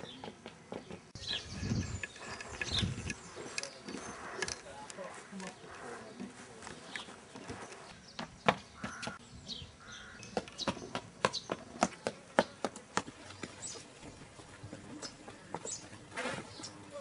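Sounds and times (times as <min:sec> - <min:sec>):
child running footsteps on stone: 0:00.0 - 0:01.8, 0:10.3 - 0:16.1.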